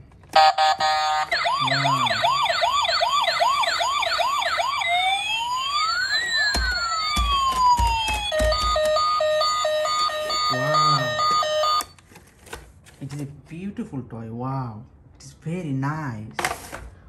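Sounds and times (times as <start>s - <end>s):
toy police siren: 0.4s - 11.9s
pulsed beeping tone: 8.3s - 11.8s.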